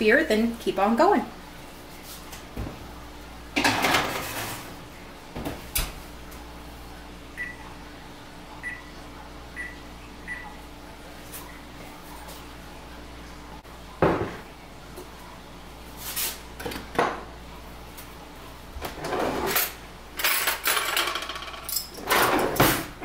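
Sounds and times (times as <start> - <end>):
kitchenware clinking and scraping: 3.6 - 4.8, 18.8 - 23.0.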